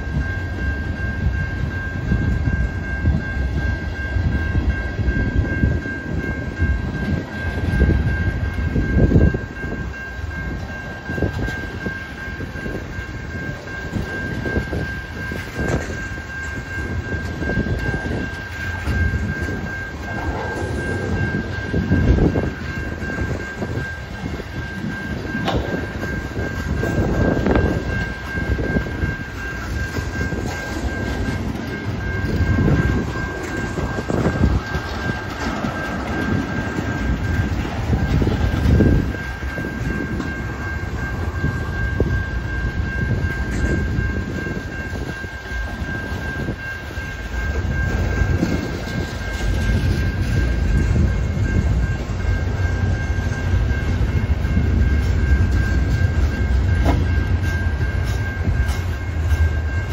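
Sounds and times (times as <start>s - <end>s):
high-pitched tone: 0.0s - 59.9s
train wheels rumbling on rail: 0.0s - 59.9s.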